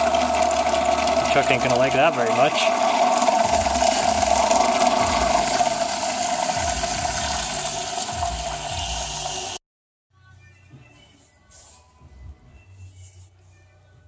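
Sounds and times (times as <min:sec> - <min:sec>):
fuel pump whine: 0:00.0 - 0:09.6.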